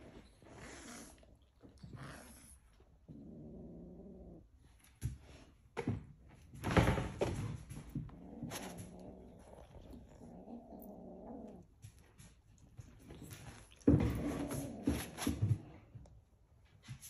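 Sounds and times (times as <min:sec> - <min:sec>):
dog growling: 0:00.1 - 0:04.6, 0:07.8 - 0:11.9, 0:13.8 - 0:15.5.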